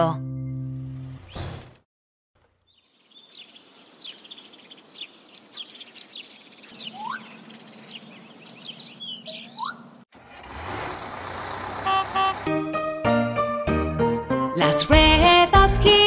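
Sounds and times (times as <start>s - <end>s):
birds chirping: 2.4s - 10.0s
rising whistled bird note: 6.8s - 7.4s.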